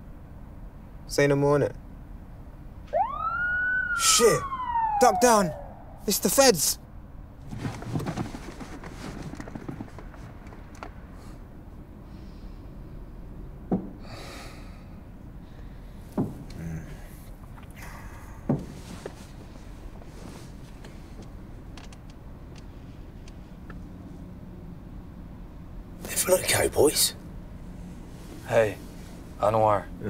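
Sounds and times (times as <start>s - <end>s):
quiet breathing: 11.1s - 13.1s, 14.0s - 19.0s.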